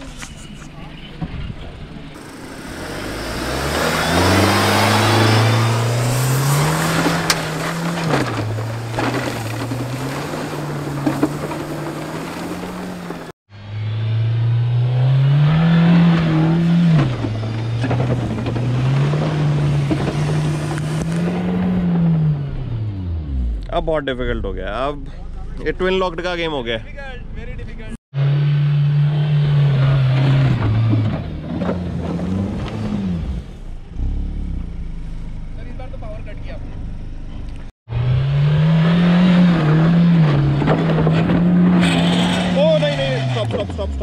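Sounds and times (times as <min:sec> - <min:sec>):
engine revving at full throttle: 0:02.2 - 0:23.7, 0:28.1 - 0:34.9, 0:37.9 - 0:44.0
tyres spinning in mud: 0:02.4 - 0:13.3, 0:16.2 - 0:21.8.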